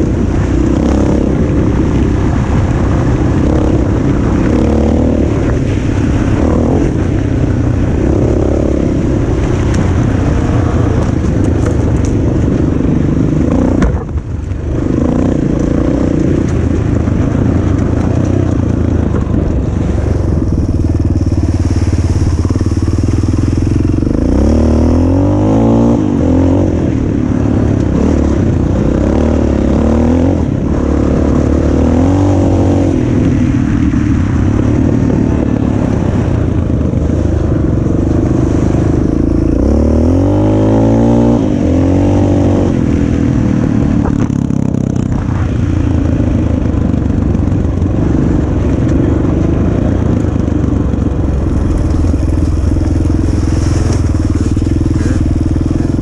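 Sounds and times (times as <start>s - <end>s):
dirt bike engine revving: 0.0s - 11.4s, 19.0s - 33.1s, 38.2s - 43.2s, 51.2s - 56.0s.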